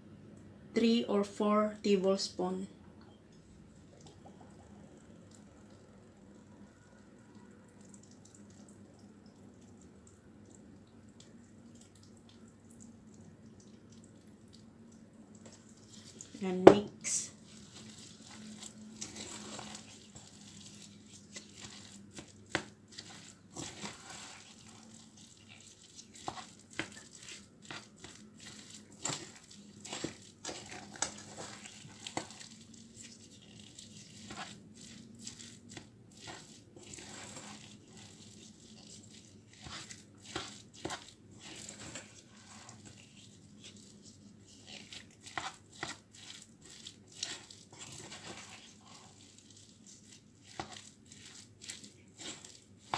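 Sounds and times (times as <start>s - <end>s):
sticky rice squishing: 3.7s - 52.9s
spatula scraping and tapping a pot: 25.5s - 33.2s, 35.7s - 49.3s, 50.5s - 52.9s.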